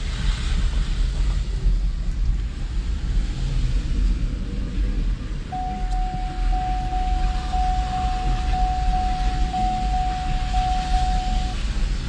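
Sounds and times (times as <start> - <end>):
car cabin rumble: 5.4 - 12.0
steady high tone: 5.5 - 11.6.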